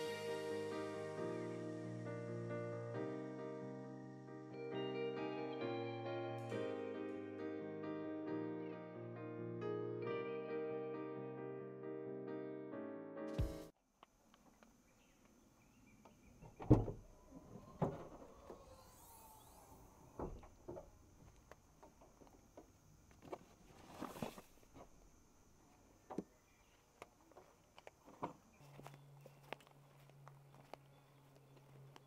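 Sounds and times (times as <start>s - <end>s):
low hum: 16.8s - 21.5s
camping gear being handled: 23.1s - 25.0s.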